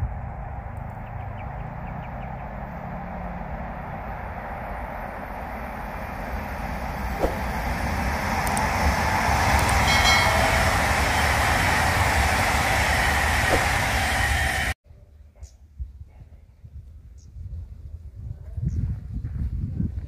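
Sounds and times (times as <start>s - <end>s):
high-speed train rushing past: 0.0s - 14.8s.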